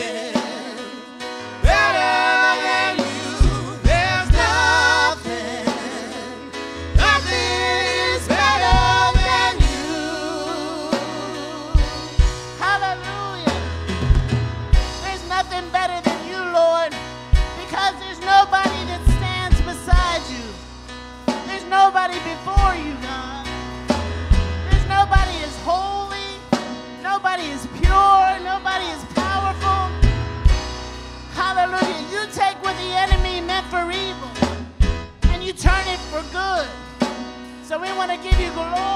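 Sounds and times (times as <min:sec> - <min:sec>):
woman singing: 0:00.0 - 0:12.2
drum kit: 0:00.0 - 0:38.9
low bass notes: 0:01.5 - 0:38.9.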